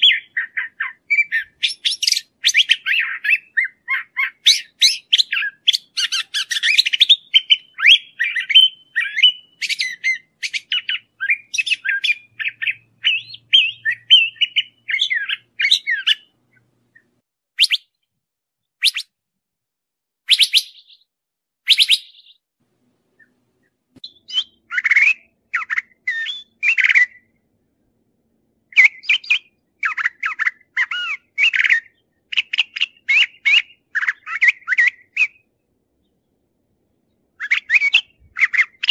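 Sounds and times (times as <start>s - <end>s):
bird singing: 0.0s - 18.0s, 18.8s - 19.1s, 20.3s - 21.1s, 21.7s - 22.4s, 23.2s - 27.4s, 28.7s - 36.4s, 37.1s - 38.9s.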